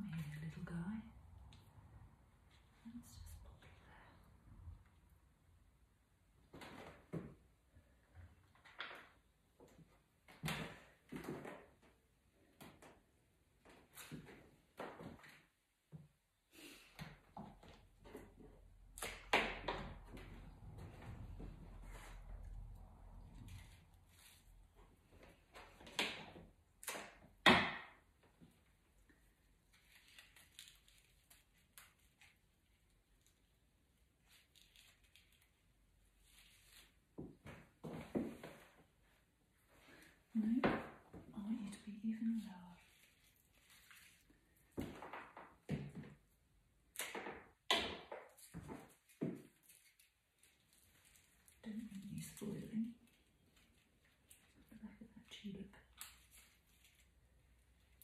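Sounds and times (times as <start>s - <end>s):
flower stems rustling: 41.4s - 44.8s, 48.9s - 54.8s.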